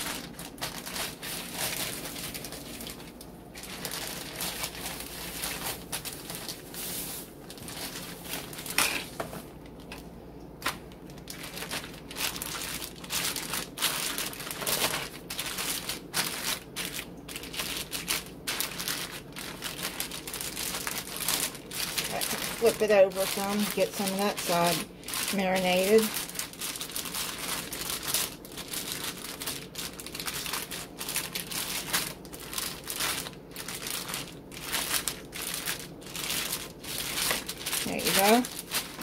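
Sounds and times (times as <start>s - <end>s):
plastic bag crinkling: 0.0s - 39.0s.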